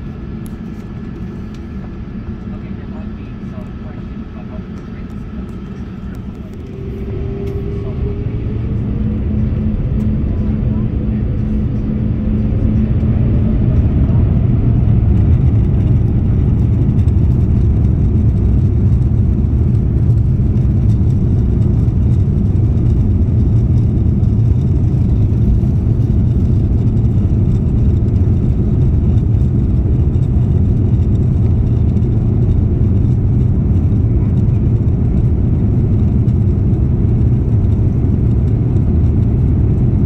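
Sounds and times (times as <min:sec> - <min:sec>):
engine and runway rush: 0:00.0 - 0:40.0
jet engines whining: 0:00.0 - 0:40.0.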